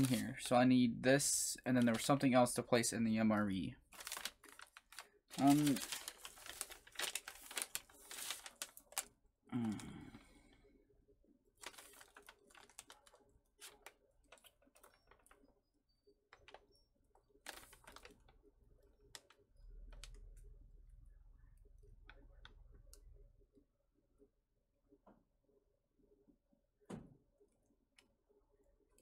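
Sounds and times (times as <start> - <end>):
plastic packaging crinkling: 0.0 - 0.5, 3.8 - 9.8, 11.6 - 20.4.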